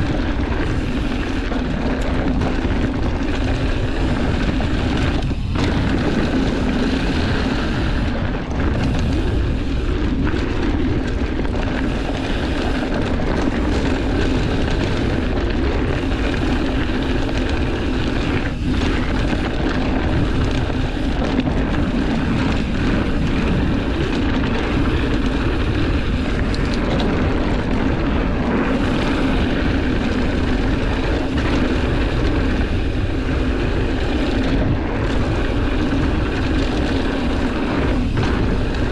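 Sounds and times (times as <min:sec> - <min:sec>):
bike tyres crunching on dirt: 0:00.0 - 0:38.9
wind on microphone: 0:00.0 - 0:38.9.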